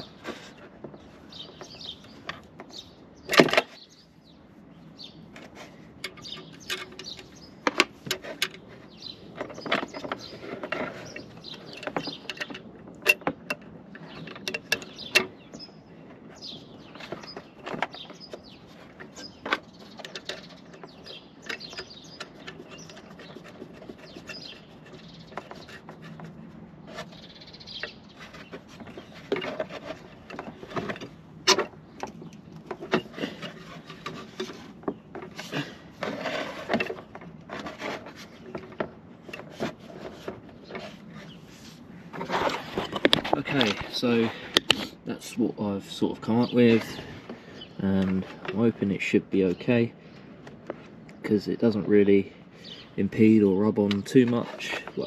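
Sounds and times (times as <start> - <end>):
clinks and knocks on metal parts: 9.3 - 15.4, 19.0 - 26.3.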